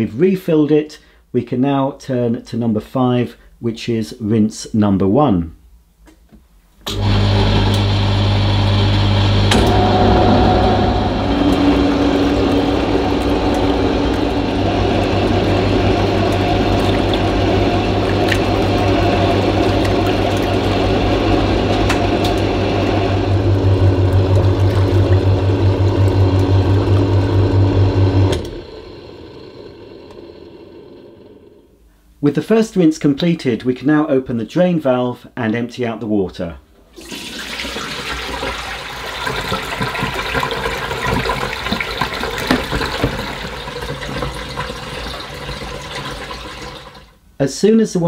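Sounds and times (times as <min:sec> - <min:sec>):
washing machine motor humming: 0:06.9 - 0:31.8, 0:37.0 - 0:47.1.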